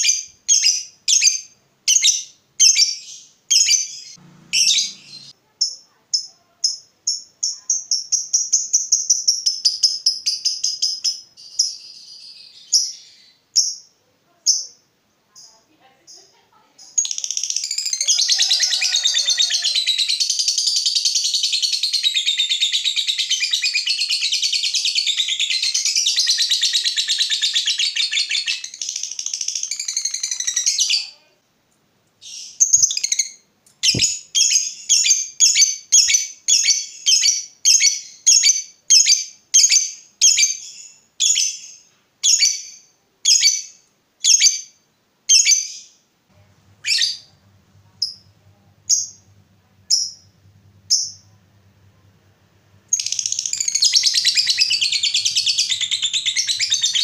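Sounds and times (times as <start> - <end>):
sharp bird chirps: 0.0 - 13.9, 52.9 - 57.0
lovebird shrill chattering trill: 52.9 - 57.0.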